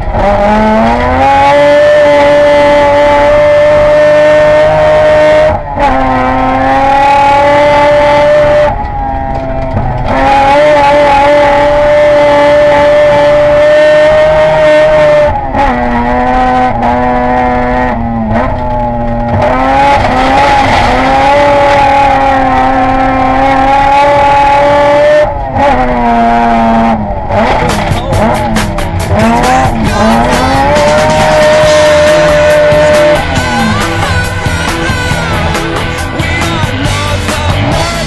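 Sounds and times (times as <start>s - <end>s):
rally car engine at full throttle: 0.0s - 38.0s
rapid engine crackling: 15.2s - 38.0s.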